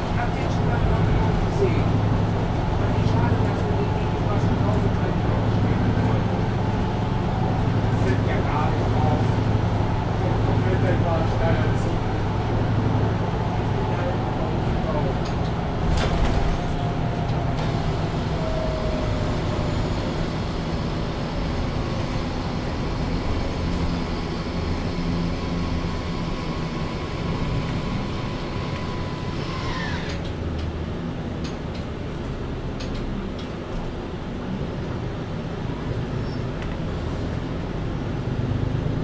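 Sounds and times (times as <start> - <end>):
bus diesel engine idling: 0.0 - 30.4.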